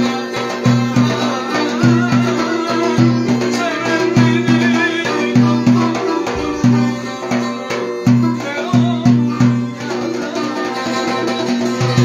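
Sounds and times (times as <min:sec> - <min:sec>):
plucked lute strings: 0:00.0 - 0:12.0
violin melody: 0:00.0 - 0:12.0.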